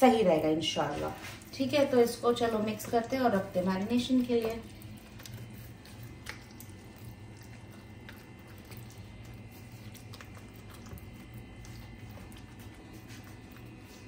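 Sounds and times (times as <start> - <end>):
steady low hum: 0.0 - 14.0
wet squelching of kneaded meat: 0.0 - 14.0
small sticky clicks: 4.2 - 13.7.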